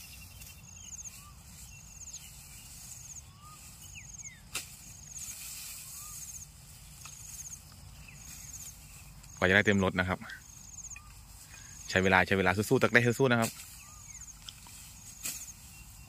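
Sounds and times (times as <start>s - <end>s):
whistled bird notes: 0.0s - 9.1s, 13.6s - 14.5s
insect ticking trill: 0.0s - 16.0s
blade chopping grass: 4.4s - 5.8s, 13.3s - 13.8s, 14.4s - 15.6s.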